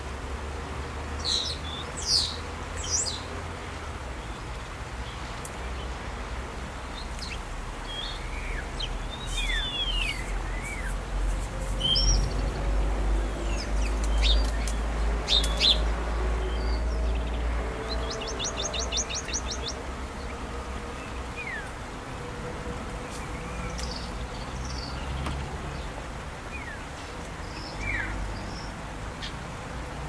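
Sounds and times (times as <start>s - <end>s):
birds chirping: 1.2s - 22.0s, 22.6s - 29.4s.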